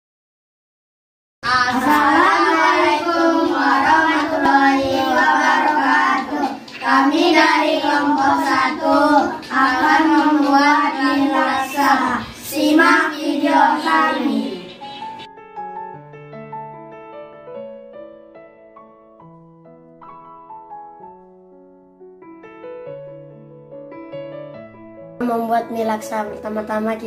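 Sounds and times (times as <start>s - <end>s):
boys singing in unison: 1.4s - 14.8s.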